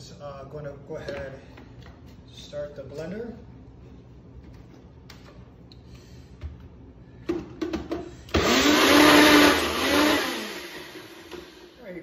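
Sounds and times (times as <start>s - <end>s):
blender motor running: 8.3s - 11.7s.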